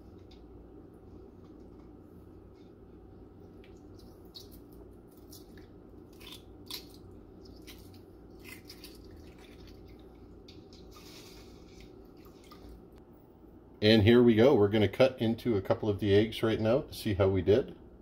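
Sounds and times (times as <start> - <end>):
water drips and splashes: 7.5 - 10.7.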